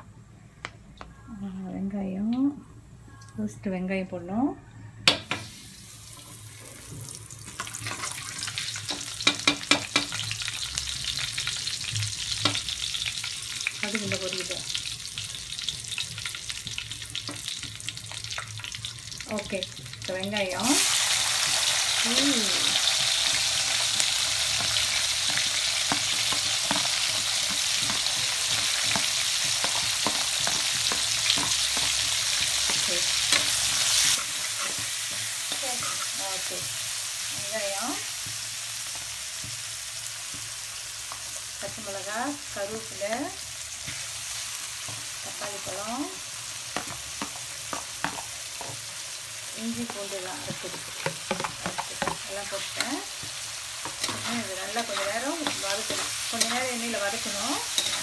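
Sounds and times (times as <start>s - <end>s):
seeds sizzling in hot oil: 5.3s - 58.0s
metal spatula stirring: 24.5s - 36.5s, 46.8s - 48.8s, 49.8s - 58.0s.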